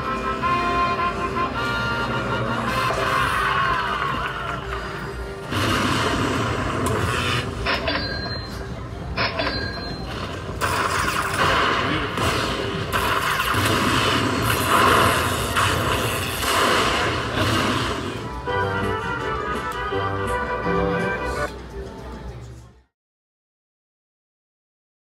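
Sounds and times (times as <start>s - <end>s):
slot machine win music: 0.0s - 21.5s
sharp hits: 5.4s - 8.4s, 10.2s - 18.6s.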